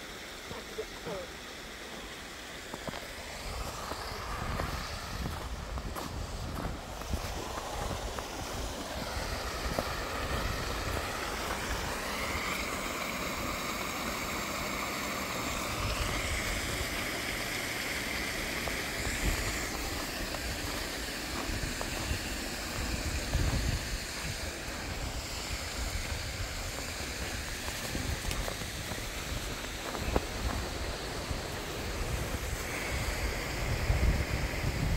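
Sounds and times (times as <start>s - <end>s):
water rushing over rocks: 0.0s - 34.9s
wind on microphone: 3.4s - 12.5s, 18.7s - 34.9s.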